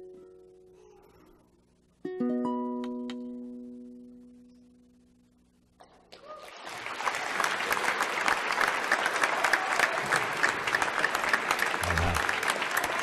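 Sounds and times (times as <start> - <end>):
ukulele chord: 2.0 - 4.6
audience applause: 6.1 - 13.0.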